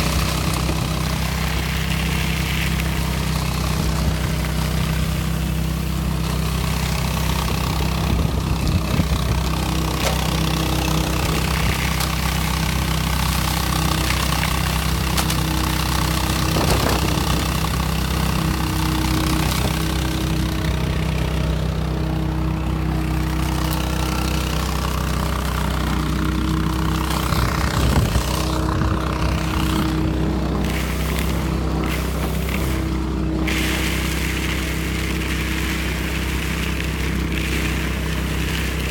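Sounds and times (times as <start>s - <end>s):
leaf vacuum engine running: 0.0s - 38.9s
air rushing through hose: 30.6s - 36.6s.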